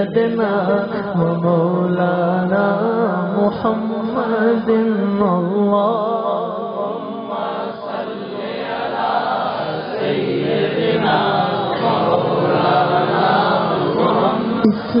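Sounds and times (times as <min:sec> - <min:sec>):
men chanting in unison: 0:05.9 - 0:15.0.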